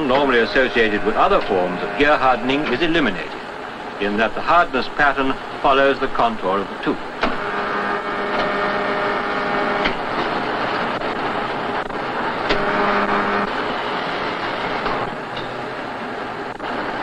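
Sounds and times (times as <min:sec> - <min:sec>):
machine hum: 0:00.0 - 0:05.9, 0:06.6 - 0:17.0.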